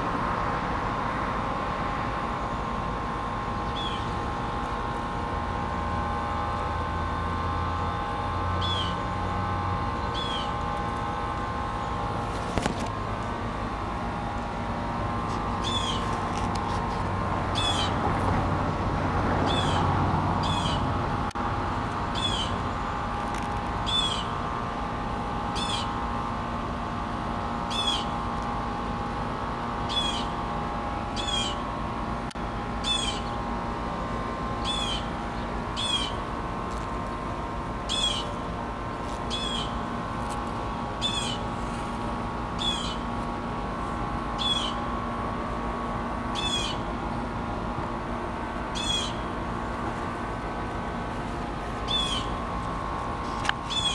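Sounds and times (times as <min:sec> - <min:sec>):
steady low hum: 0:00.0 - 0:53.9
small bird calling: 0:03.6 - 0:04.1, 0:08.6 - 0:09.1, 0:10.0 - 0:10.6, 0:15.6 - 0:16.2, 0:17.6 - 0:18.0, 0:19.5 - 0:20.9, 0:22.2 - 0:22.6, 0:23.8 - 0:24.4, 0:25.6 - 0:25.9, 0:27.7 - 0:28.2, 0:29.9 - 0:30.4, 0:31.2 - 0:31.6, 0:32.8 - 0:33.4, 0:34.6 - 0:35.1, 0:35.8 - 0:36.2, 0:37.9 - 0:38.4, 0:39.3 - 0:39.8, 0:41.0 - 0:41.5, 0:42.6 - 0:43.1, 0:44.4 - 0:44.8, 0:46.4 - 0:46.9, 0:48.8 - 0:49.3, 0:51.8 - 0:52.4, 0:53.6 - 0:53.9.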